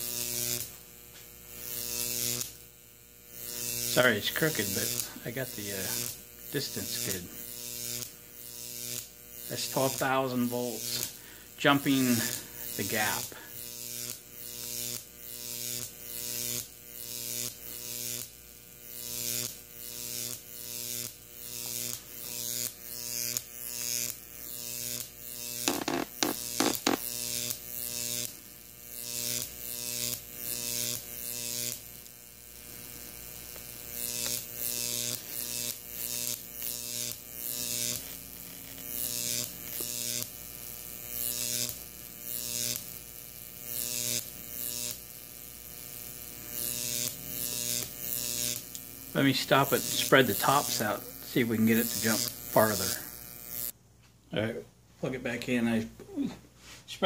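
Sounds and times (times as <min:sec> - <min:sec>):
electric arc crackling hiss: 0:00.0 - 0:53.8
sharp electric snaps: 0:00.0 - 0:53.8
transformer electrical hum: 0:00.0 - 0:54.1.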